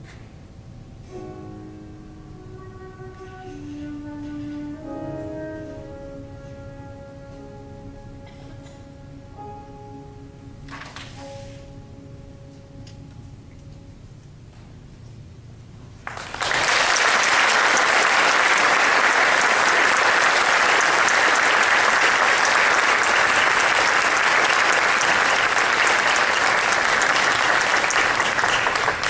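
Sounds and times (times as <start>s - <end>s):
audience applauding: 16.0s - 29.0s.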